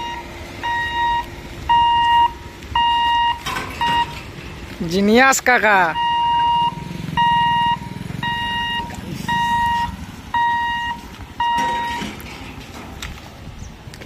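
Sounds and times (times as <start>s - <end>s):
electronic warning beeps: 0.0s - 4.2s, 5.9s - 12.1s
low engine hum: 0.0s - 14.0s.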